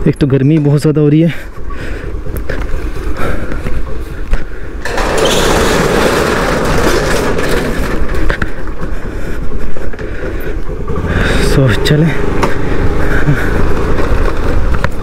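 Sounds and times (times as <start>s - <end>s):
metal rolling shutter rattling: 4.8s - 9.3s.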